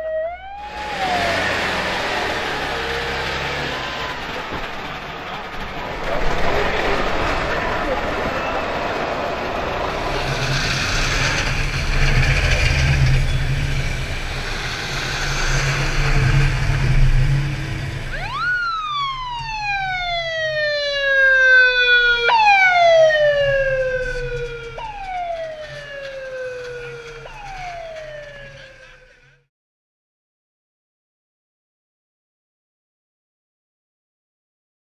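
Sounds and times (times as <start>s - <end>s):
rising and sliding tone effect: 0.0s - 29.3s
two-stroke car engines running: 0.6s - 18.6s, 23.0s - 29.4s.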